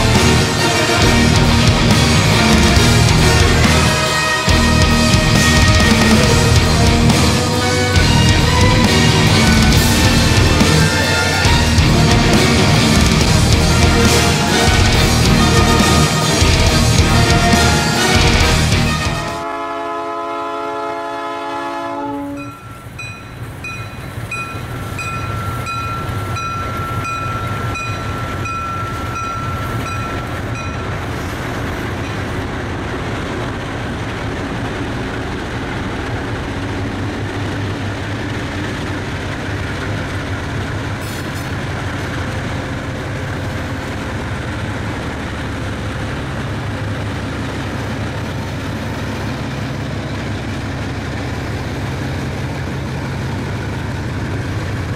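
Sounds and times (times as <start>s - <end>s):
diesel locomotive engines: 0.0s - 54.9s
wheels rumbling on rails: 0.0s - 54.9s
level-crossing bell dinging: 22.3s - 31.3s.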